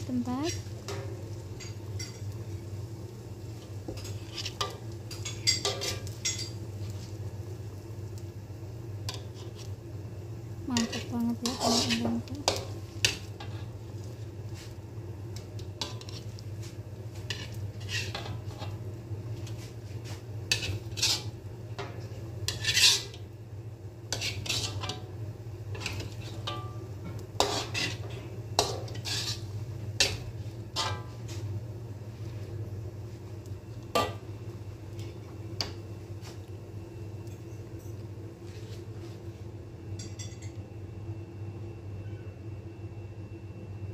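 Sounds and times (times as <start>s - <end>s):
metal spatula scraping a wok: 3.9s - 6.6s, 9.1s - 9.7s, 10.7s - 13.7s, 15.8s - 16.4s, 17.2s - 18.8s, 20.5s - 23.2s, 24.1s - 25.1s, 25.7s - 31.3s.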